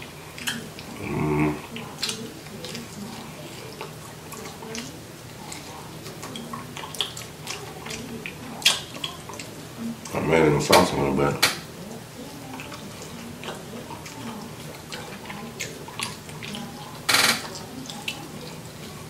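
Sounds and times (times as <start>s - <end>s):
mouth eating crab wet smacks: 0.0s - 19.0s
person humming: 0.9s - 1.7s.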